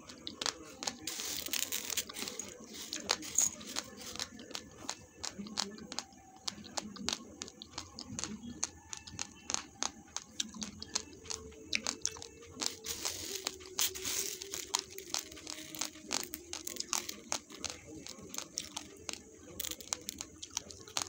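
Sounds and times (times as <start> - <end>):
dry rice grains rustling: 0.0 - 9.9, 10.6 - 21.0
rice grains crunched between teeth: 0.0 - 21.0.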